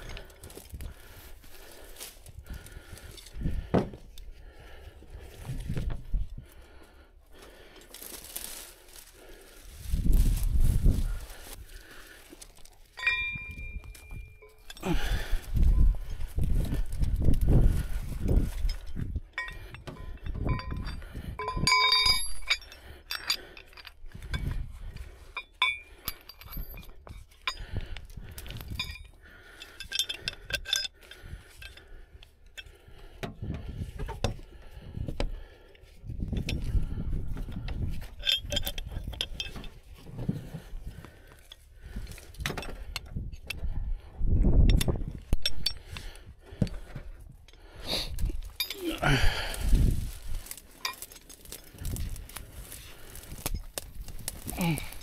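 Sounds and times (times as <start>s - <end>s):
metal rigging hardware clinking: 0.0s - 4.4s, 7.8s - 34.6s, 35.2s - 43.7s, 44.6s - 55.0s
rustling through brush: 0.0s - 19.1s, 47.7s - 55.0s.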